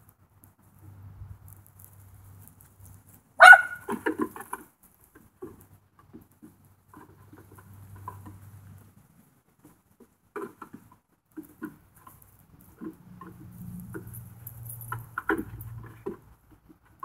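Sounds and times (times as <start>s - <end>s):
hooves on plastic pipe: 0.7s - 17.0s
dog barking: 3.4s - 4.0s.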